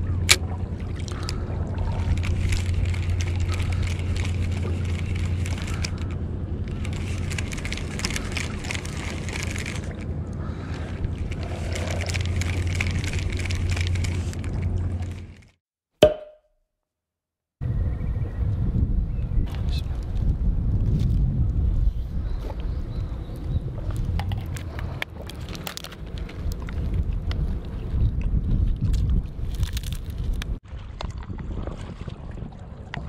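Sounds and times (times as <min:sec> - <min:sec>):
low rumble: 0:00.0 - 0:15.5.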